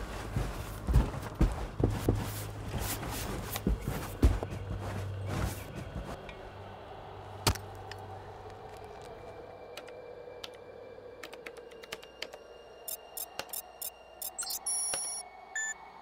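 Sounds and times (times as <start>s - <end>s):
small electronic clicks and ticks: 11.3s - 15.2s.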